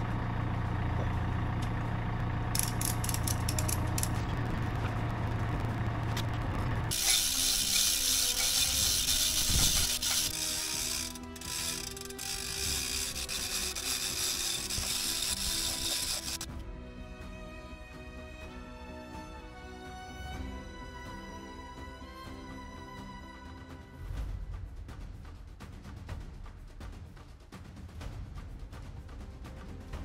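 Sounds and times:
engine idling: 0.0 - 16.6
mechanical clicks: 2.6 - 4.3, 6.9 - 16.5.

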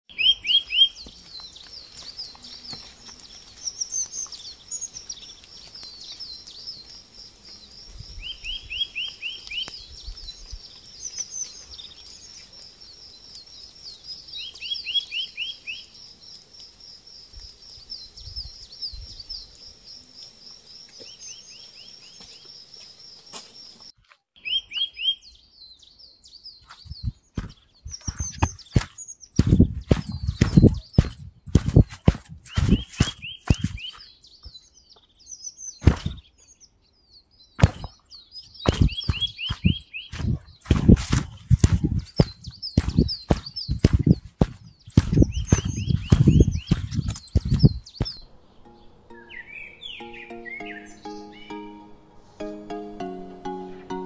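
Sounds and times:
high rapid bird trill: 26.6 - 34.1, 35.8 - 36.2, 37.6 - 48.2.

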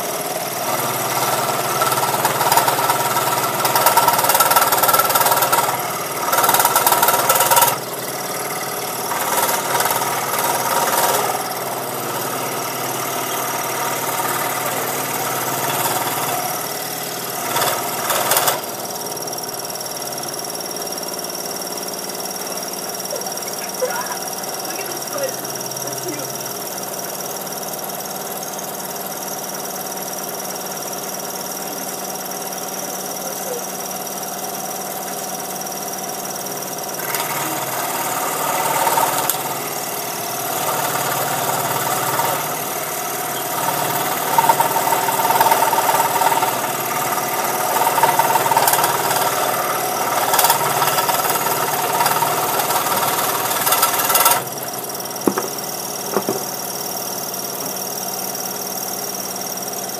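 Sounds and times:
scroll saw motor hum: 0.0 - 19.7, 36.9 - 59.3
saw blade cutting wood: 0.6 - 18.9, 37.0 - 39.8, 40.4 - 56.8
light knocks: 55.2 - 56.5.

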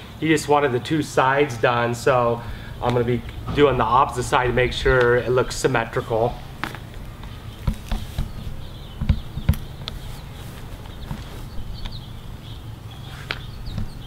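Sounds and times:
steady low hum: 0.0 - 14.0
dull knocks of weather strip: 2.8 - 12.1, 13.1 - 14.0
faint chirps of birds or insects: 4.7 - 14.0.

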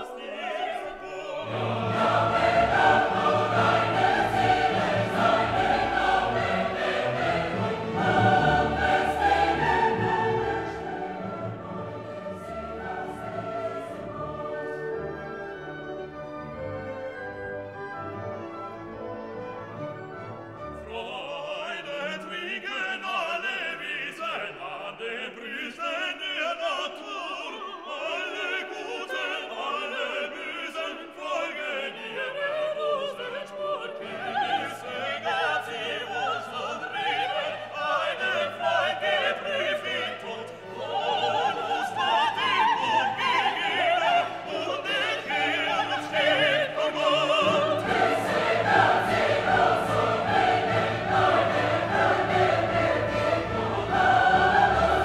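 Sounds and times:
operatic singing: 0.0 - 16.2, 20.7 - 55.0
orchestral accompaniment: 0.4 - 22.6, 33.9 - 55.0.

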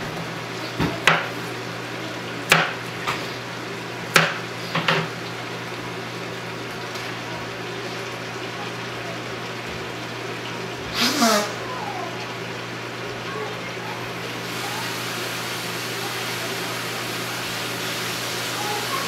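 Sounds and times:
knife chopping on plastic board: 0.8 - 1.3, 2.5 - 2.8, 4.1 - 4.9.

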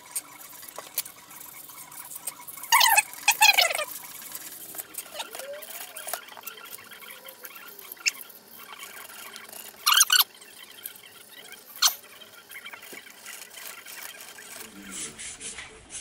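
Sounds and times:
scratchy sanding rubbing: 0.0 - 16.0
short sharp squeaks: 1.8 - 3.9, 5.0 - 15.3.

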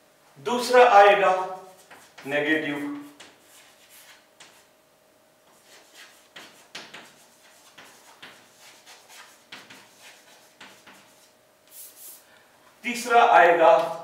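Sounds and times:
chalk tapping and scraping: 1.6 - 4.7, 5.5 - 12.3.

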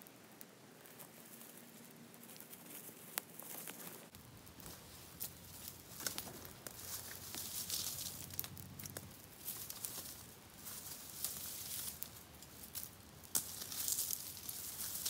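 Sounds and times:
campfire crackling and popping: 0.0 - 15.0.

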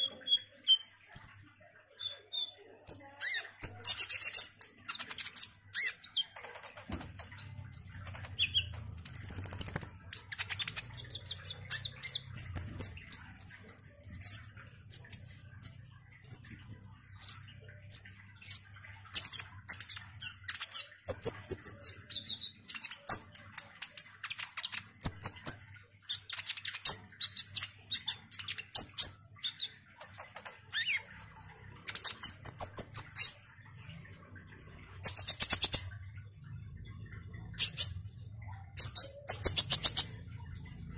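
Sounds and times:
sunbird singing: 7.2 - 18.6.

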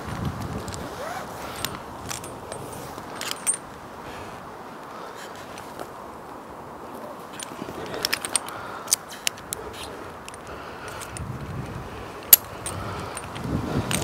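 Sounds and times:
climbing hardware clinking: 0.6 - 3.8, 6.9 - 14.0.

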